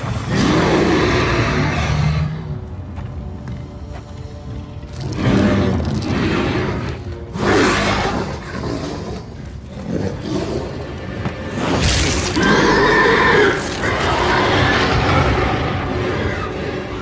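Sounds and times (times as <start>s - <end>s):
dragon roar: 0.0s - 2.5s, 11.5s - 16.8s
dramatic film score: 0.0s - 17.0s
fantasy sound effects: 0.0s - 17.0s.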